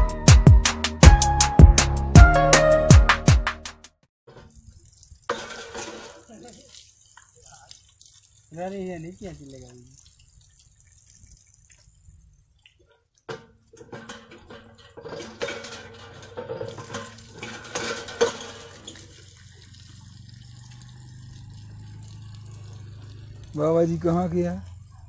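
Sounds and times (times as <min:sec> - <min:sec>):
water splashing on stone: 0:04.3 - 0:25.0
hand pump clanking: 0:13.3 - 0:19.7.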